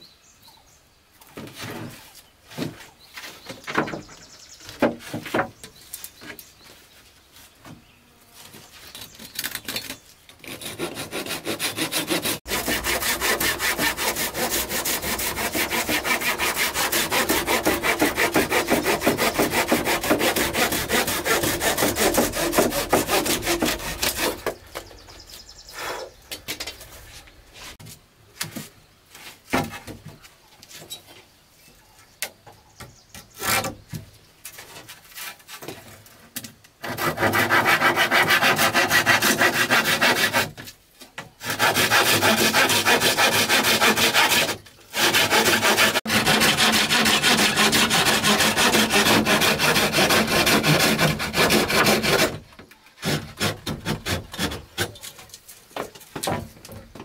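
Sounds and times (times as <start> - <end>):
wood knocks and scrapes: 1.3 - 6.8, 12.6 - 25.3, 26.0 - 31.2, 32.8 - 38.6, 43.2 - 57.0
hand saw cutting wood: 8.9 - 25.0, 33.3 - 33.8, 36.8 - 40.7, 41.4 - 56.4.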